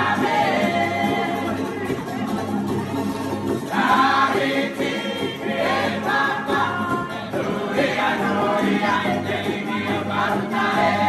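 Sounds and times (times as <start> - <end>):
men and women singing in chorus: 0.0 - 1.7, 3.6 - 11.0
strummed ukuleles and guitars: 0.0 - 11.0.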